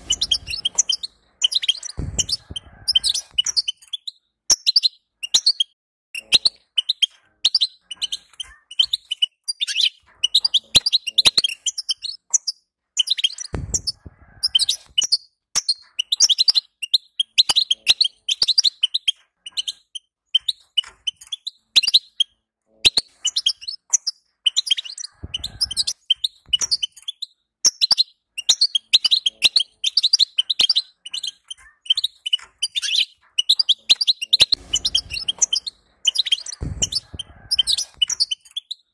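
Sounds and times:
low bump: 0.0 - 3.2, 34.6 - 38.0
bird twittering: 0.0 - 38.9.

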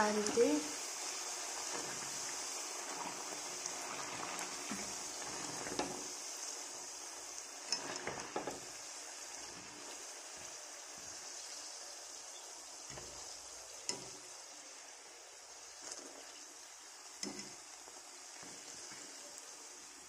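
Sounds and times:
food deep-frying in oil: 0.0 - 20.0.

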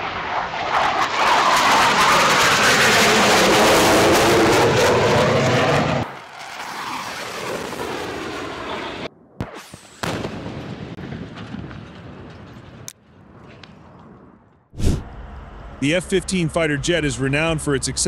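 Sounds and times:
jet engines roaring: 0.0 - 9.1, 15.0 - 18.0
jet passing: 0.0 - 9.1.

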